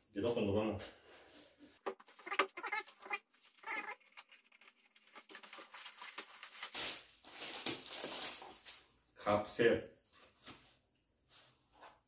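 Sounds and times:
plastic wrapping crinkling: 3.3s - 9.0s.

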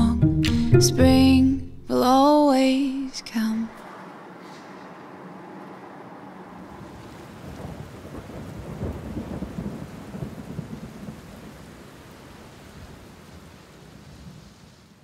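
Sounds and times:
thunder rumbling: 3.8s - 14.4s
rain: 3.8s - 15.0s.

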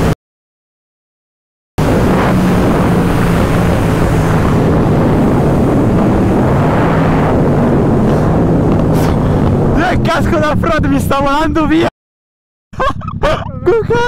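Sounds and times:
wind rushing over microphone: 1.8s - 11.8s
motorcycle engine cruising: 1.8s - 11.9s, 12.8s - 14.0s.

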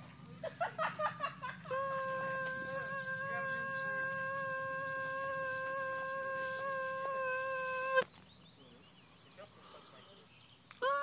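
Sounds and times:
mosquito whining: 1.7s - 8.1s.

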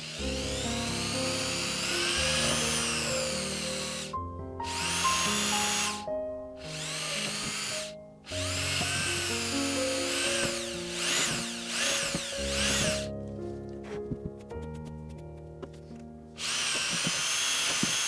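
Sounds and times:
cordless drill whining into panel: 0.0s - 4.1s, 4.7s - 13.1s, 16.4s - 18.0s
background music: 0.0s - 16.4s.

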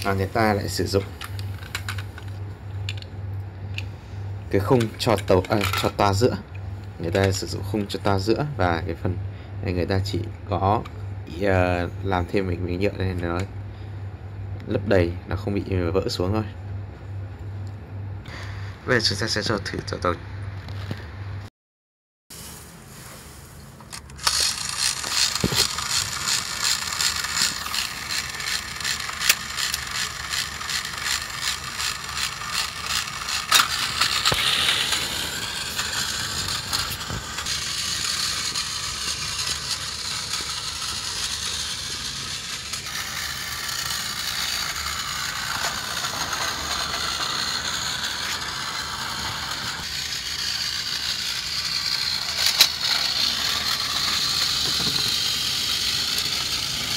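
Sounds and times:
toy train motor whirring: 0.0s - 3.0s, 3.7s - 6.2s, 23.8s - 56.9s.

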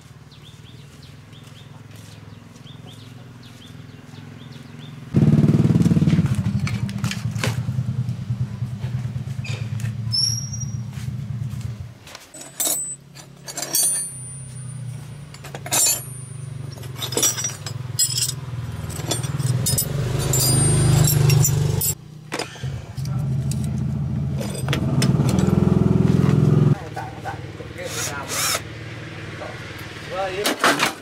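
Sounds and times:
small metal parts clinking: 12.3s - 22.0s, 24.4s - 25.6s.

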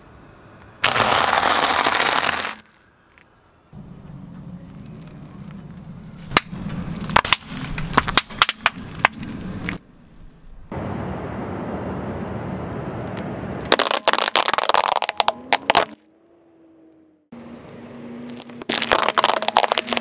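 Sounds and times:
paintballs crushed cracking: 0.8s - 2.8s, 6.3s - 9.8s, 13.7s - 16.0s, 18.3s - 20.0s
detergent pods bursting with pops: 13.7s - 16.0s, 18.4s - 20.0s.

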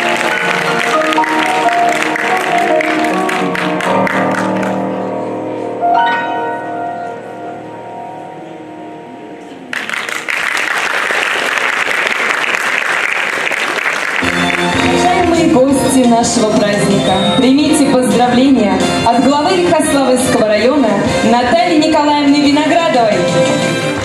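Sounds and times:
audience applause: 0.0s - 4.9s, 9.7s - 15.5s
grand piano playing: 0.0s - 10.4s, 14.1s - 24.0s.

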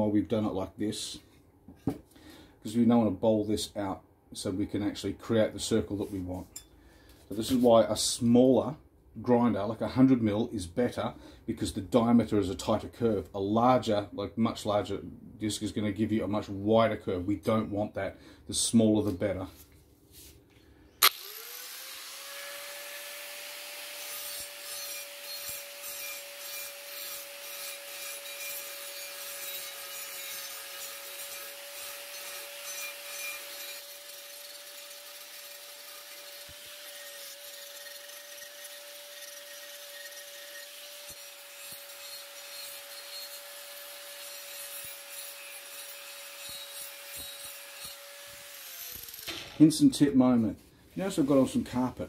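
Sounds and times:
angle grinder whine: 21.0s - 26.5s, 32.2s - 49.6s
grinder cutting ceramic tile: 21.0s - 49.8s.

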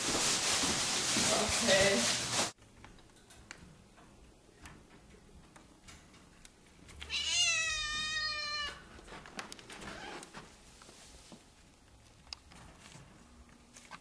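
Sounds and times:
cat meowing: 7.1s - 8.8s.

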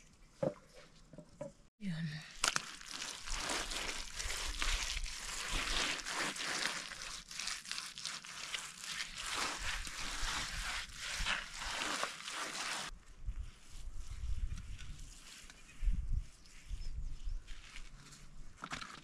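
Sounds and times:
hand scraping plaster on floor: 3.3s - 12.9s.

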